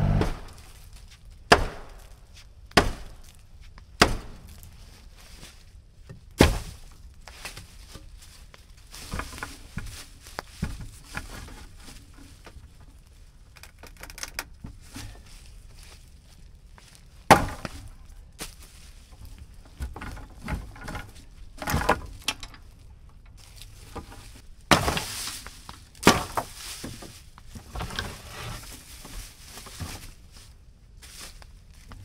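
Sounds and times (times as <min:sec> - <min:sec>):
wooden boards knocking and cracking: 0:01.5 - 0:02.1, 0:04.0 - 0:04.6, 0:17.3 - 0:17.9, 0:19.7 - 0:22.5, 0:24.7 - 0:25.3, 0:26.0 - 0:28.2
wood scraping clatter: 0:08.9 - 0:16.0, 0:19.0 - 0:22.7, 0:23.3 - 0:30.4.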